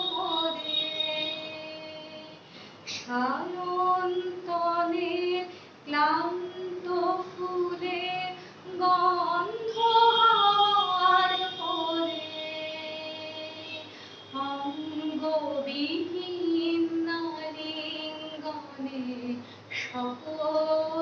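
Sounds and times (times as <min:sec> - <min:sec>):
woman singing: 0:00.0 - 0:21.0
singer breathing: 0:02.4 - 0:03.1, 0:05.5 - 0:05.8, 0:08.4 - 0:08.7, 0:13.9 - 0:14.3, 0:19.4 - 0:19.8.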